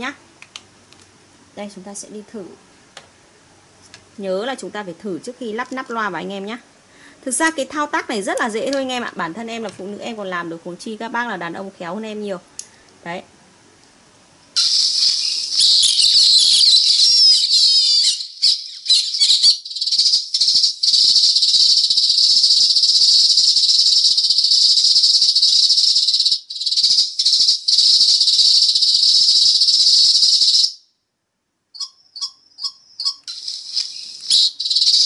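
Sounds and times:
recorded sparrow chirps through speaker: 14.6 - 30.9, 31.8 - 35.0.

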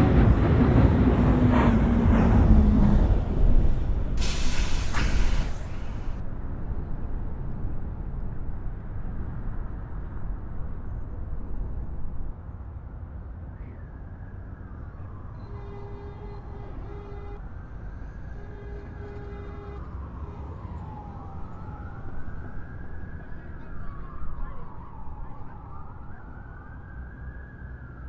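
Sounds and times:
subway train rumbling: 0.0 - 8.6
emergency sirens wailing: 13.5 - 28.0.

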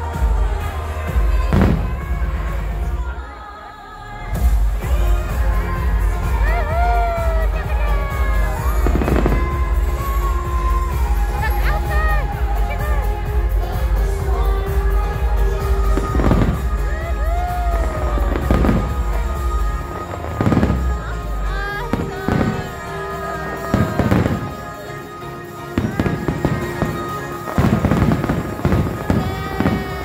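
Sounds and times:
music soundtrack: 0.0 - 30.0
fireworks booming: 1.1 - 3.1, 7.5 - 12.0, 14.7 - 21.2, 23.5 - 24.8, 25.7 - 30.0.

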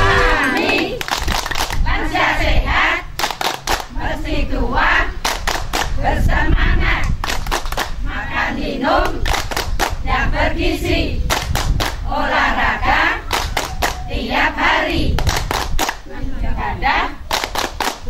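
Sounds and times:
women singing in unison: 0.0 - 1.0, 1.8 - 3.2, 3.9 - 7.2, 8.0 - 9.3, 10.0 - 11.3, 12.0 - 15.3, 15.9 - 17.3
hand claps: 0.3 - 1.8, 3.2 - 3.9, 5.2 - 6.0, 7.0 - 8.0, 9.0 - 10.0, 13.3 - 14.0, 15.2 - 16.0, 17.3 - 18.0.

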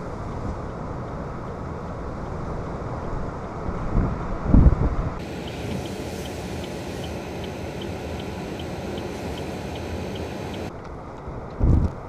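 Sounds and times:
blizzard wind: 0.0 - 12.0
faint high ticking: 5.2 - 10.7.

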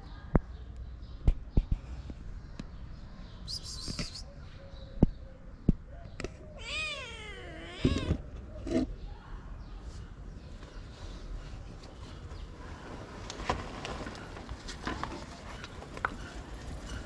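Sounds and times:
kitten meowing: 6.6 - 8.2.

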